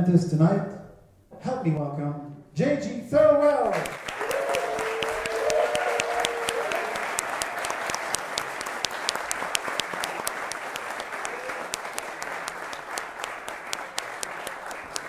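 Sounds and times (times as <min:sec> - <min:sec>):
audience applauding: 0:03.7 - 0:15.0.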